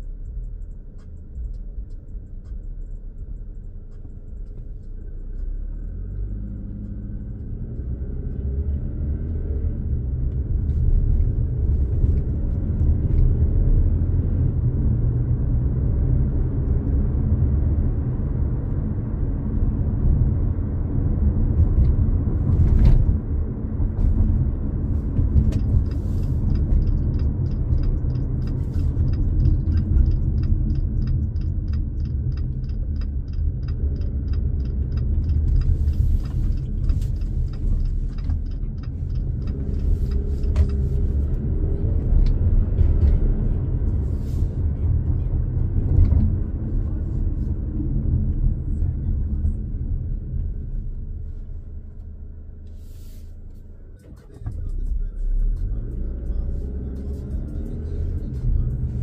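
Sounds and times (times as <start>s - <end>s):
regular ticking: 0.0s - 8.0s, 25.2s - 41.5s
car engine accelerating: 0.0s - 59.0s
road rumble: 0.0s - 59.0s.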